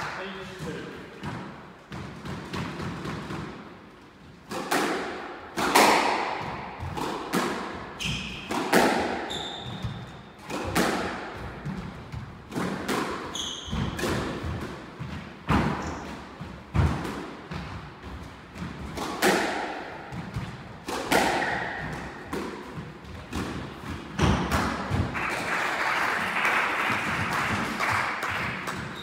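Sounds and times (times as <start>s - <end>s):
squash ball hits echoing: 0.0s - 25.5s, 26.2s - 29.0s
shoes squeaking on wooden floor: 9.2s - 10.2s, 13.2s - 14.0s.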